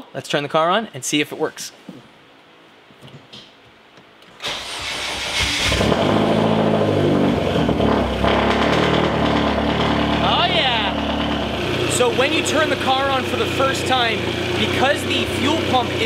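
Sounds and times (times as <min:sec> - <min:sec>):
car engine cranking and idling: 0:04.4 - 0:16.0.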